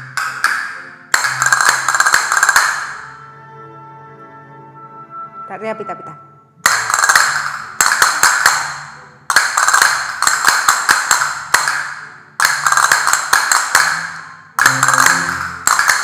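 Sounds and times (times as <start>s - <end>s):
castanets clicking: 0.0s - 3.1s, 6.6s - 16.0s.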